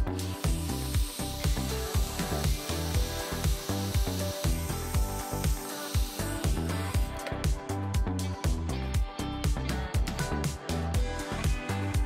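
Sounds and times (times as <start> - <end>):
heat gun airflow hiss: 0.0 - 7.6
background music with steady beat: 0.0 - 12.0.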